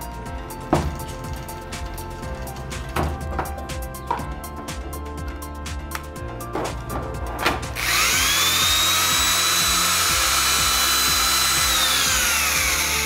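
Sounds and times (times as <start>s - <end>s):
background music: 0.0s - 13.0s
power cord reel motor whining: 7.8s - 13.0s.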